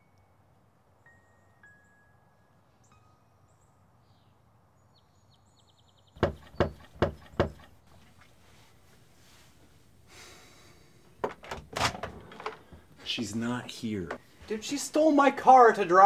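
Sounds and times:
birds chirping: 2.8s - 8.4s
knocks on wooden door: 6.2s - 7.7s.

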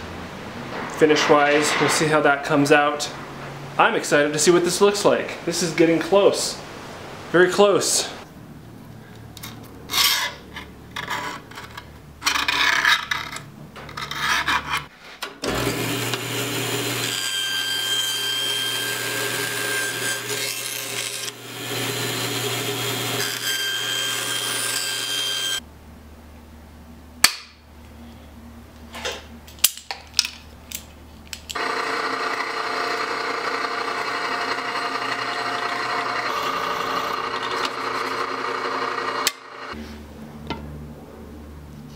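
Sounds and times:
bandsaw cutting: 15.5s - 25.6s, 31.6s - 39.8s
drill press drilling: 31.6s - 39.8s.

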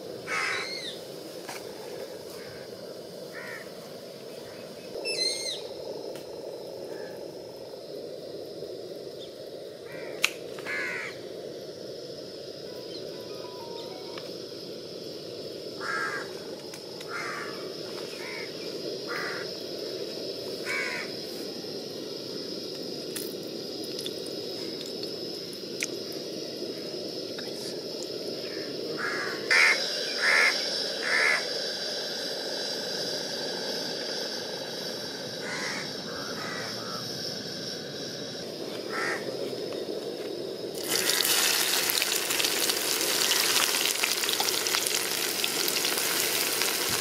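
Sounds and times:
background hiss: 0.0s - 47.0s
crows cawing: 0.3s - 0.9s, 3.3s - 3.7s, 9.9s - 11.2s, 15.8s - 16.3s, 17.1s - 17.6s, 18.2s - 18.5s, 19.1s - 19.5s, 20.6s - 21.1s, 29.0s - 31.4s, 35.4s - 37.0s, 38.9s - 39.3s.

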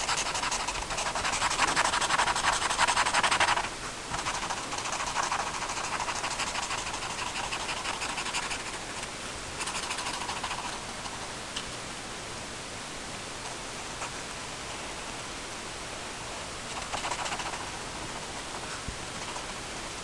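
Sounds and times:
pen scratching on paper: 0.0s - 9.0s, 9.6s - 11.2s, 16.7s - 19.6s
steady hiss: 0.0s - 20.0s.

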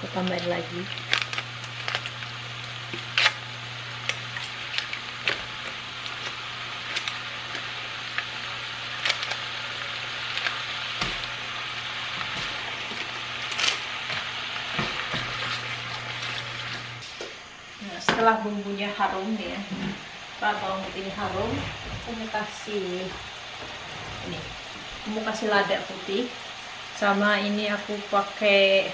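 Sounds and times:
garlic sizzling in butter: 0.0s - 28.9s
sharp pops and crackles: 0.2s - 17.4s.

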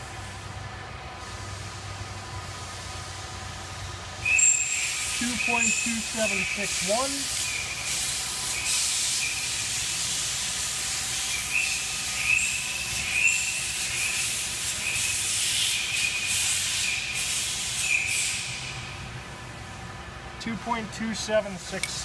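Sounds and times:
wavering high whine: 0.0s - 20.7s
steady hiss: 0.0s - 22.0s.

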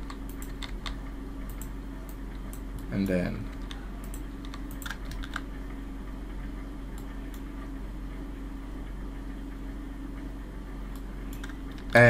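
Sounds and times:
keyboard and mouse clicks: 0.0s - 2.9s, 3.5s - 5.5s, 10.9s - 12.0s
steady low hum: 0.0s - 12.0s.

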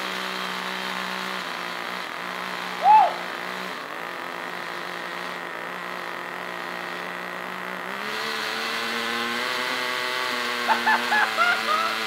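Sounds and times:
rc car engine idling: 0.0s - 12.0s.

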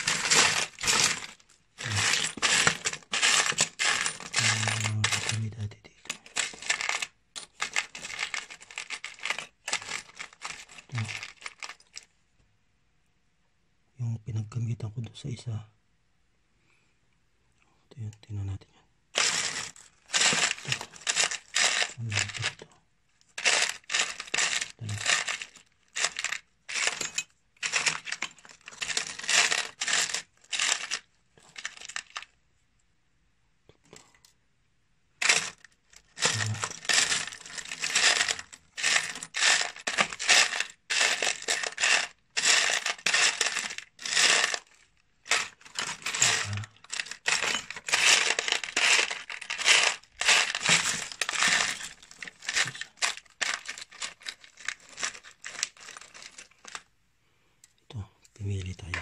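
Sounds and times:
screws and bolts rattling in tub: 0.0s - 12.0s, 19.2s - 22.6s, 23.4s - 32.2s, 35.2s - 56.8s.

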